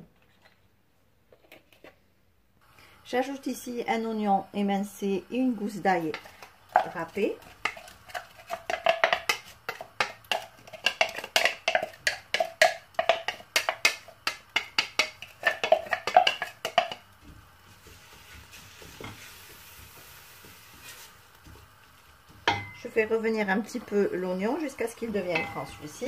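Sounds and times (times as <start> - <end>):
onion and garlic sizzling in oil: 3.1 - 26.0
knocks against a steel pot: 25.3 - 25.8.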